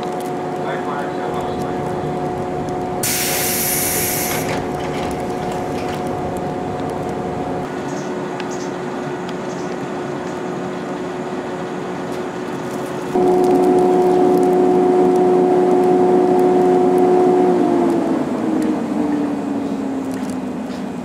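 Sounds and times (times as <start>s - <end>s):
electrical hum of train: 0.0s - 21.0s
train doors closing air hiss: 3.0s - 6.0s.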